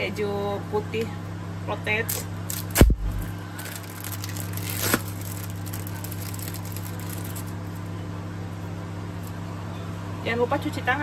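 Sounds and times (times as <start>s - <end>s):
low electrical hum: 0.0s - 11.0s
plastic film crinkling: 2.1s - 7.9s.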